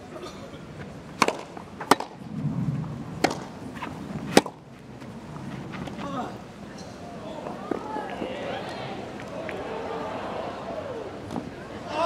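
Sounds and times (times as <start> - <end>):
tennis balls struck by rackets: 1.2 - 2.2, 3.2 - 4.6.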